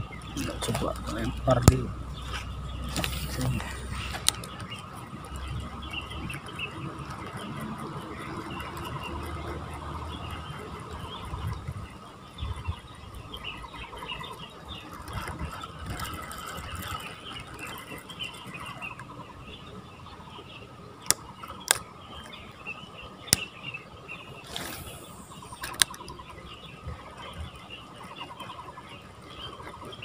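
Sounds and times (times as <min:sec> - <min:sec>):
small birds chirping: 0:00.0 - 0:30.0
sharp clicks: 0:24.4 - 0:26.2.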